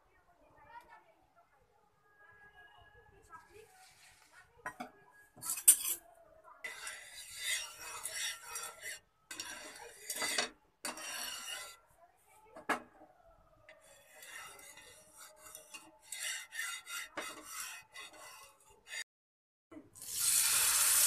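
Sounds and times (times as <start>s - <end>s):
spatula scraping griddle: 6.7s - 11.9s, 13.7s - 19.1s.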